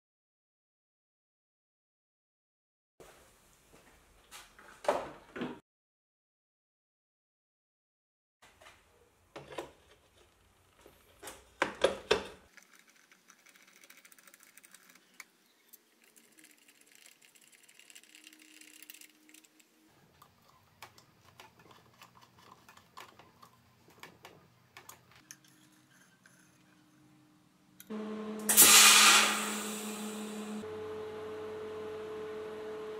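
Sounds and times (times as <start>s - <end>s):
small metal clicks and rattling: 12.5s - 26.5s.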